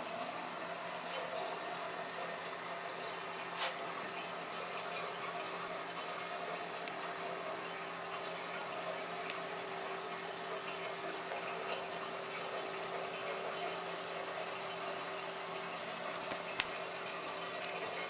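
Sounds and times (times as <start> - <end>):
tap water running into sink: 8.1 - 18.0.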